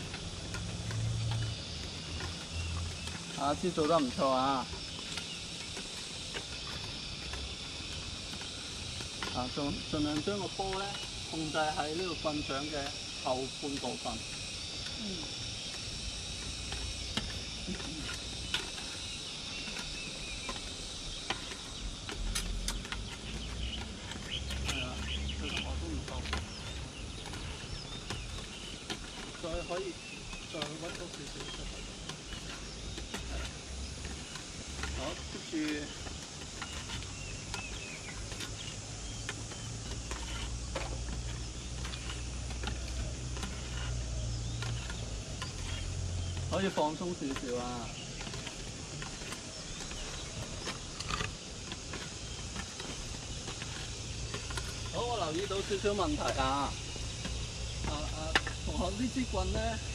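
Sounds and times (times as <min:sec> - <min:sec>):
insect drone: 0:00.0 - 0:59.9
sticks tapping plastic balls: 0:15.7 - 0:59.6.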